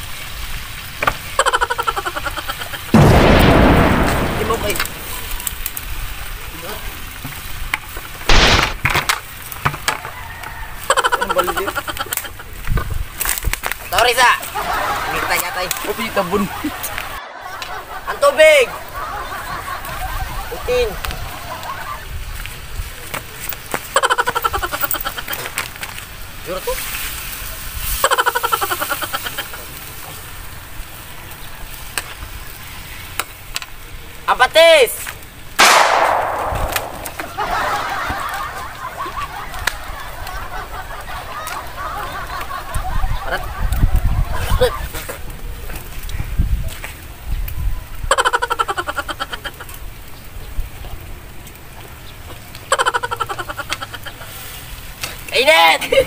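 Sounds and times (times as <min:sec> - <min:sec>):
burning sticks crackling: 0:00.0 - 0:56.0
vegetables sizzling in a wok: 0:26.2 - 0:31.1.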